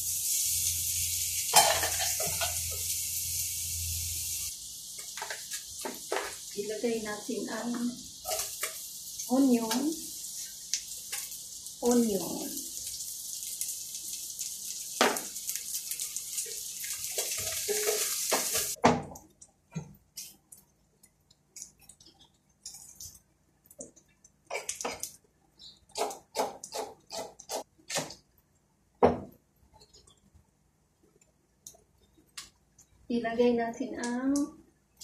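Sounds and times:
onion sizzling in a pan: 0:00.0 - 0:18.8.

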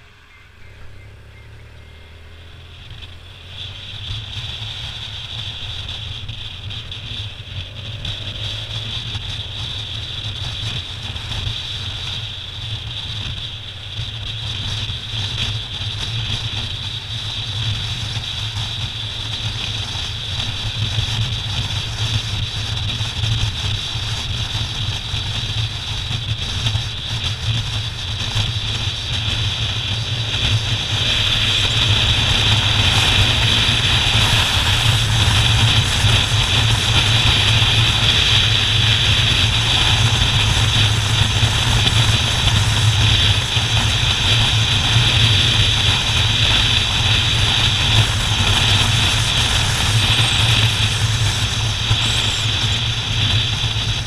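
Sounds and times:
motorcycle engine drone: 0:00.0 - 0:54.0
wind rush: 0:28.6 - 0:54.0.

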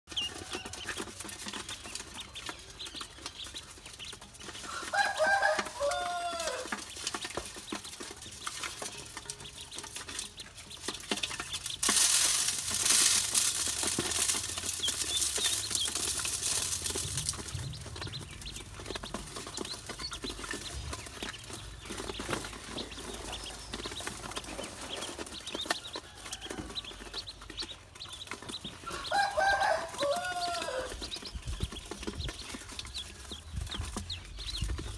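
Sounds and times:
beaks and feet clicking on metal: 0:00.1 - 0:34.9
ducklings peeping: 0:00.1 - 0:34.9
grain feed pouring into basin: 0:04.6 - 0:09.3, 0:10.9 - 0:20.6, 0:28.9 - 0:31.0.

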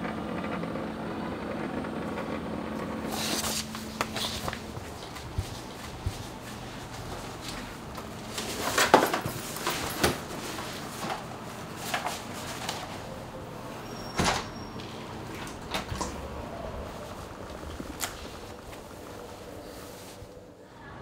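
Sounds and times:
knocks and clatter of handling: 0:03.4 - 0:13.1.

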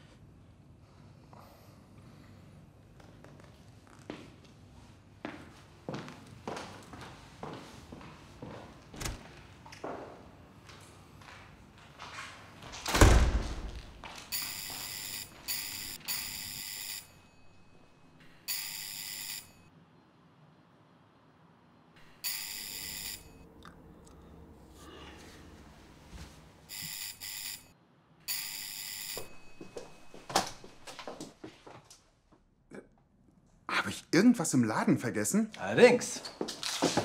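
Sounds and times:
electric doorbell ringing: 0:22.2 - 0:23.4.

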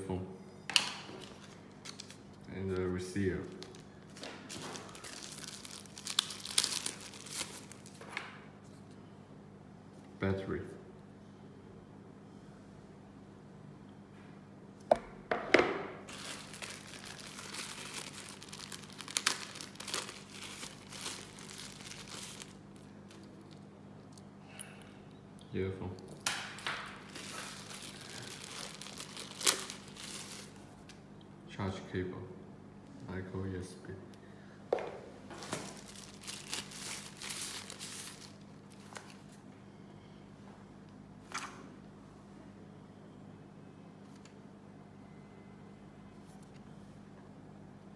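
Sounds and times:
plastic bag crinkling: 0:03.4 - 0:08.2, 0:16.0 - 0:24.1, 0:26.1 - 0:30.6, 0:35.3 - 0:39.4.

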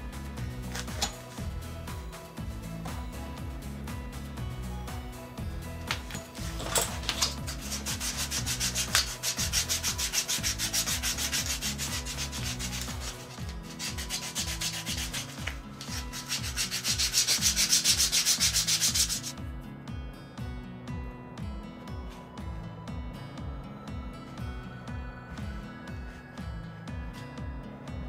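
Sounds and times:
sandpaper rubbing leather edge: 0:07.2 - 0:19.3.

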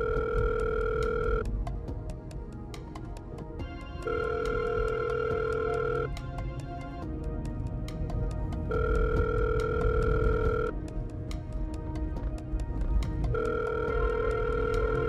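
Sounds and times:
telephone ringing tone: 0:00.0 - 0:01.5, 0:04.0 - 0:06.2, 0:08.7 - 0:10.7, 0:13.3 - 0:15.0
music with steady beat: 0:00.0 - 0:15.0.

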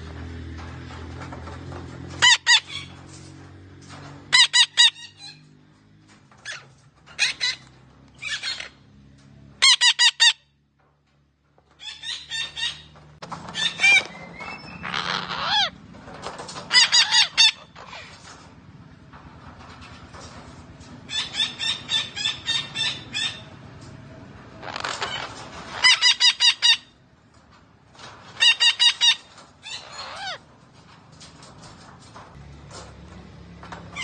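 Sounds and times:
parakeet squawking: 0:02.2 - 0:02.9, 0:04.3 - 0:05.4, 0:09.6 - 0:10.4, 0:13.5 - 0:15.8, 0:16.7 - 0:18.1, 0:24.7 - 0:26.9, 0:28.4 - 0:30.4
parakeet rasping call: 0:14.8 - 0:15.7, 0:28.4 - 0:30.4.

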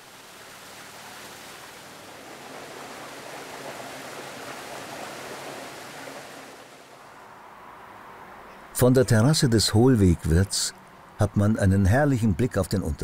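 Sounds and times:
brook water rushing: 0:00.0 - 0:07.2.

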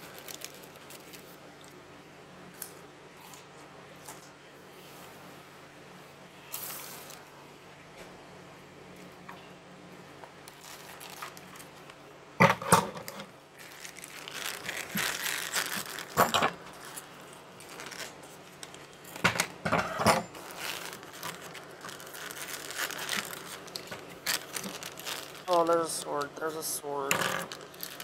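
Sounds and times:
plastic packaging crinkling and tearing: 0:00.0 - 0:01.8, 0:10.4 - 0:12.0, 0:13.0 - 0:19.2, 0:20.4 - 0:28.0.

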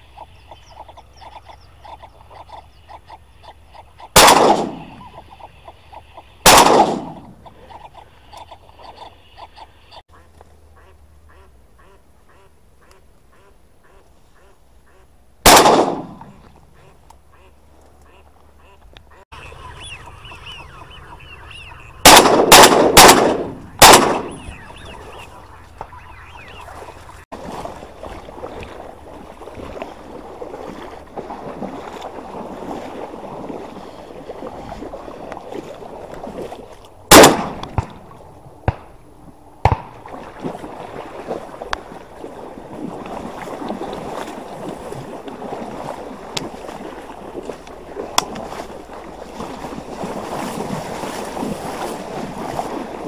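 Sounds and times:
faint waterfowl calls: 0:00.0 - 0:04.2, 0:04.8 - 0:06.4, 0:07.3 - 0:15.2, 0:16.2 - 0:22.1, 0:23.6 - 0:27.2, 0:29.6 - 0:36.8
shotgun shots: 0:04.2 - 0:05.0, 0:06.4 - 0:07.4, 0:15.4 - 0:16.3, 0:22.0 - 0:25.1, 0:37.1 - 0:38.0
rustling through reeds: 0:23.6 - 0:37.0, 0:40.1 - 0:53.0.

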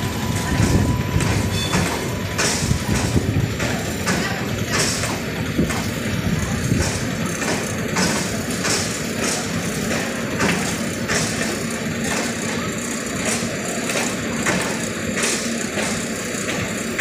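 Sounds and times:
train rolling rumble: 0:00.0 - 0:17.0
train wheels clacking over rail joints: 0:00.0 - 0:17.0.

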